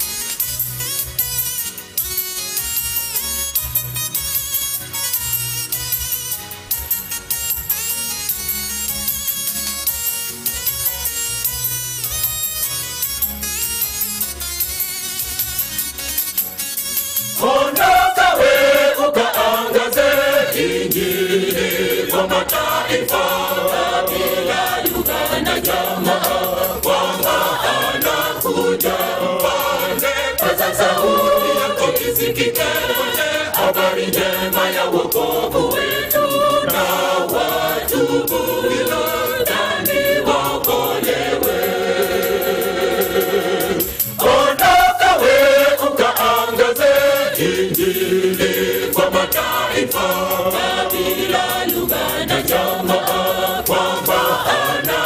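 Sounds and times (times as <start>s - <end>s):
choir singing gospel in harmony: 17.4s - 55.0s.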